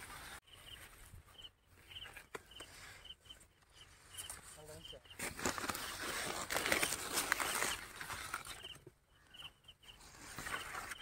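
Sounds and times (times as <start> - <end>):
dry maize plants rustling: 0.0 - 11.0.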